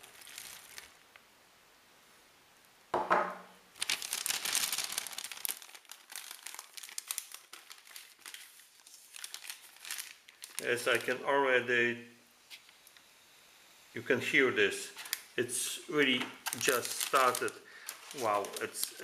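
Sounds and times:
plastic bag crinkling: 0.0 - 1.2, 3.7 - 11.3, 14.9 - 19.0.

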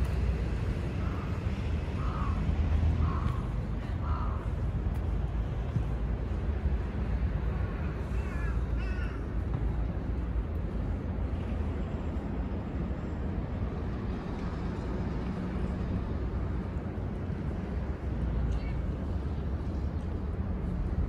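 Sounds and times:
crow cawing: 2.0 - 4.5, 8.2 - 9.3.

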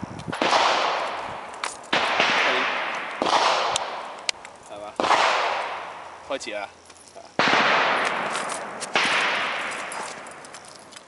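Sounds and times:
pistol shots with echo: 0.3 - 4.3, 4.9 - 6.1, 7.4 - 10.5.

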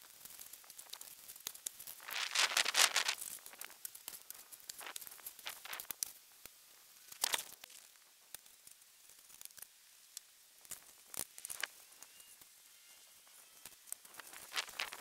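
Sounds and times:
rake crunching and scraping snow: 1.8 - 3.6, 14.0 - 15.0.

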